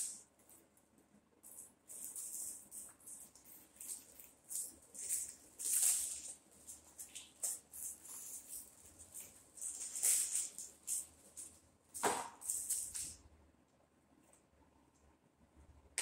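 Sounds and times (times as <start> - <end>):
packaging rustling and crinkling: 1.5 - 13.2.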